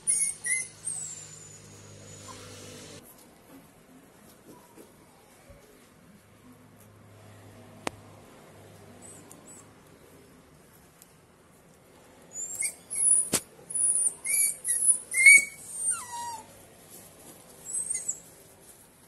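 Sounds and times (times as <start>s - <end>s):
puppy squealing: 0.0s - 3.0s, 12.3s - 16.5s, 17.6s - 18.3s.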